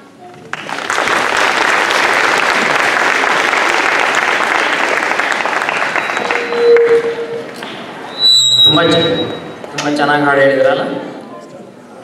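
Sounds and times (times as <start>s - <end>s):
audience applauding: 0.4s - 7.6s.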